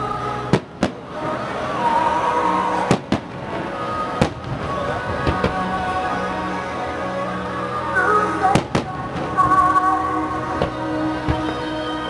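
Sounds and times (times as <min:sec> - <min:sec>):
music: 0:00.0 - 0:12.0
fireworks bursting: 0:00.5 - 0:01.3, 0:02.8 - 0:05.6, 0:08.5 - 0:09.7.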